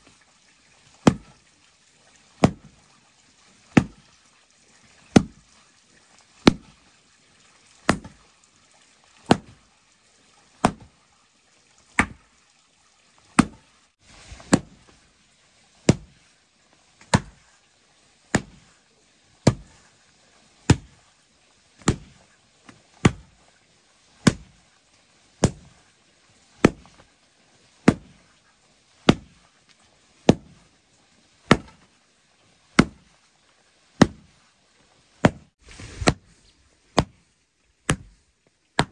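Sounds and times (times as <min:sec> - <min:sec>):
wooden pole thudding on soil: 0:01.0 - 0:01.3, 0:02.4 - 0:02.8, 0:03.7 - 0:04.0, 0:05.1 - 0:05.4, 0:06.4 - 0:06.7, 0:07.9 - 0:08.2, 0:09.2 - 0:09.6, 0:10.6 - 0:10.9, 0:12.0 - 0:12.2, 0:13.4 - 0:15.0, 0:15.8 - 0:16.2, 0:17.0 - 0:17.5, 0:18.3 - 0:18.7, 0:19.4 - 0:19.8, 0:20.6 - 0:21.0, 0:21.8 - 0:23.4, 0:24.2 - 0:24.6, 0:25.4 - 0:25.8, 0:26.6 - 0:27.0, 0:27.8 - 0:28.2, 0:29.1 - 0:29.4, 0:30.3 - 0:30.6, 0:31.5 - 0:31.9, 0:32.8 - 0:33.1, 0:34.0 - 0:34.4, 0:35.2 - 0:37.2, 0:37.9 - 0:38.2.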